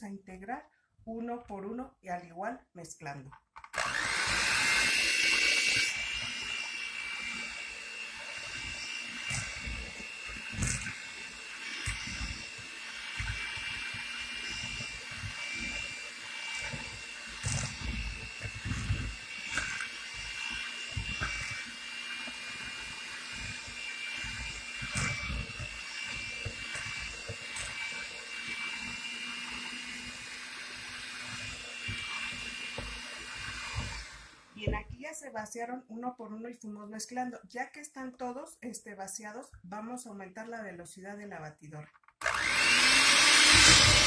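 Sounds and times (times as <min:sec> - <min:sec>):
electric hand mixer whining: 0:03.6 - 0:34.9, 0:42.2 - 0:44.0.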